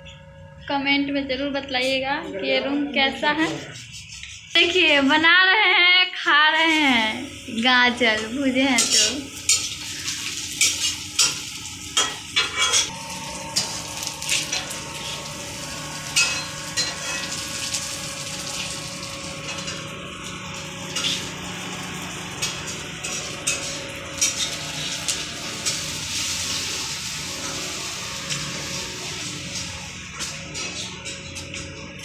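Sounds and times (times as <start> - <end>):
food sizzling in a pan: 6.5 - 30.9.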